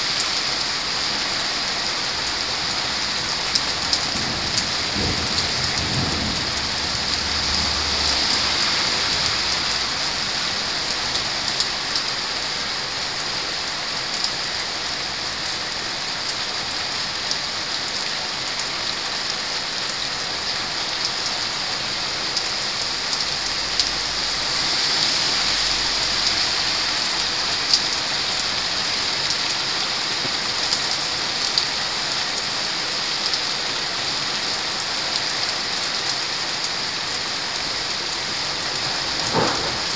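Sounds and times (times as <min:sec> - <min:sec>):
heavy rain on roofs: 0:00.0 - 0:39.9
low thunder rumble: 0:04.1 - 0:08.5, 0:39.1 - 0:39.9.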